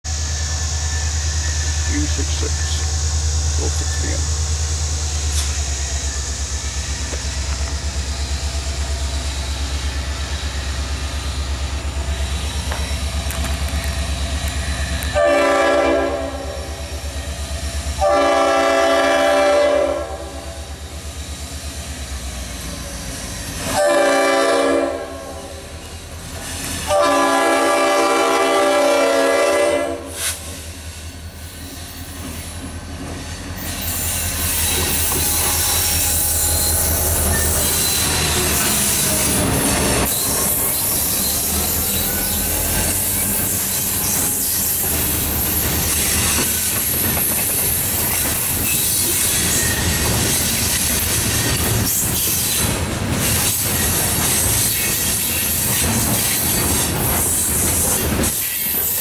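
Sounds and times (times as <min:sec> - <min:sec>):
freight cars rumbling on rails: 0:00.0 - 0:59.0
locomotive air horn blasts: 0:15.1 - 0:16.7, 0:18.0 - 0:20.5, 0:23.7 - 0:25.5, 0:26.8 - 0:30.2
faint wheel squeal: 0:33.2 - 0:46.7.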